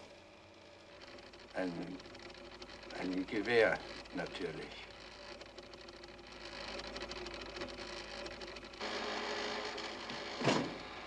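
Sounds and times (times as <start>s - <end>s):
pen recorder mechanical whirr: 0.0s - 11.0s.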